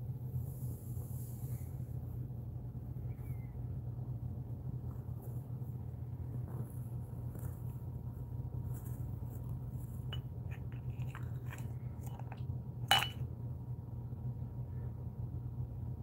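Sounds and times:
steady low hum: 0.0 - 16.0
spoon clinking: 10.1 - 13.2.

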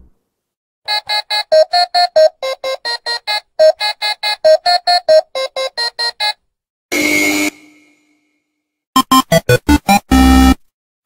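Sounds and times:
electronic keyboard melody: 9.0 - 10.6.

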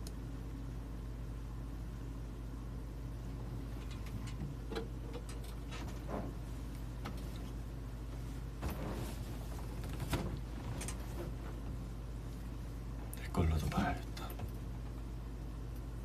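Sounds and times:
steady low hum: 0.0 - 16.0
person shifting in chair: 8.6 - 11.7.

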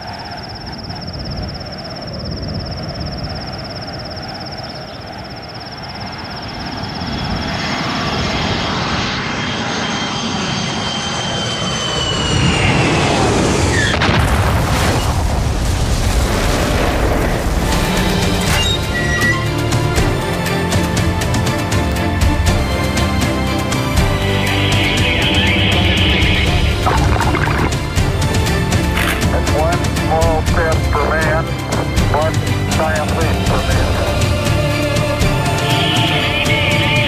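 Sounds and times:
aircraft-like whine falling in pitch: 0.0 - 14.2, 23.4 - 29.5, 33.8 - 37.0
explosion with rumble: 13.1 - 17.7
high steady buzz: 23.4 - 37.0.

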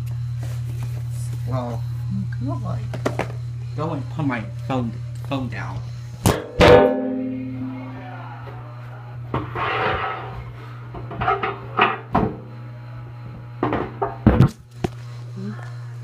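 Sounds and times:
steady low hum: 0.0 - 16.0.

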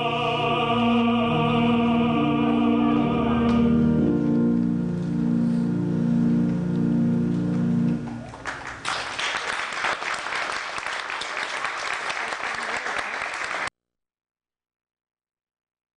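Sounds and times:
audience applauding: 8.0 - 13.7.

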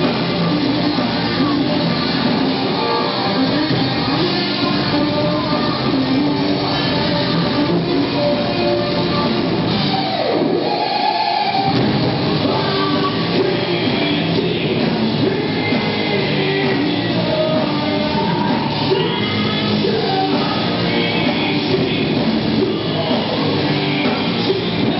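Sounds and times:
live heavy metal band: 0.0 - 24.9.

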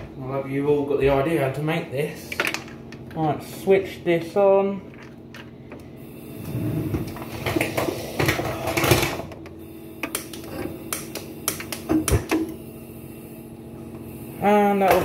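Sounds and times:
gas hissing: 5.6 - 15.0
spark igniter clicking: 10.0 - 12.6.

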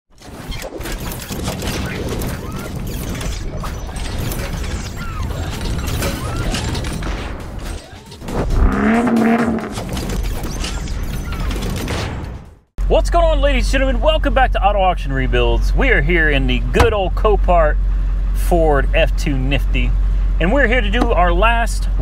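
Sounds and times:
pitched hum: 8.2 - 10.4, 12.8 - 22.0.

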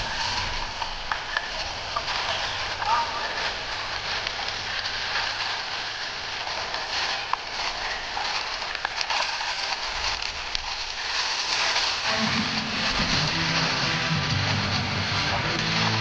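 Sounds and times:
small crackling clicks: 0.0 - 12.1
music: 12.0 - 16.0.

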